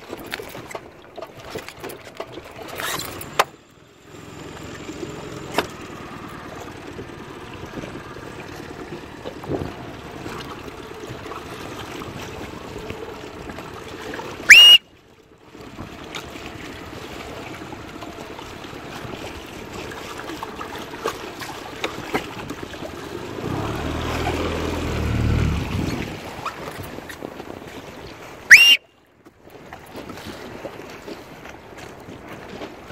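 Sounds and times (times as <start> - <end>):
wind and water rushing: 0.0 - 32.9
loud upward-gliding whistle: 14.4 - 14.8, 28.5 - 28.8
low rumble: 23.2 - 26.2.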